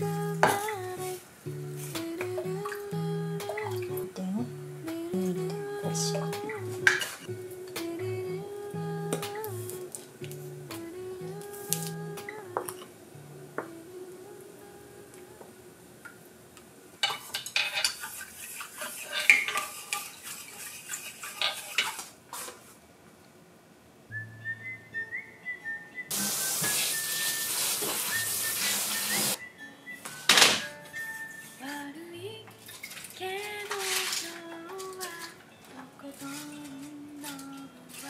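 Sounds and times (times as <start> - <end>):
light background music: 0.0 - 12.7, 24.2 - 38.0
pots and utensils clattering: 17.0 - 22.5
water being poured off: 26.1 - 29.4.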